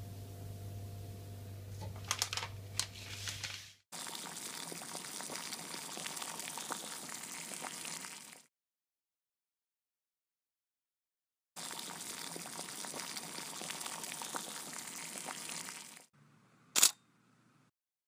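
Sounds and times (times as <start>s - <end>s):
low steady hum: 0.0s - 2.8s
paper crinkling: 1.9s - 3.8s.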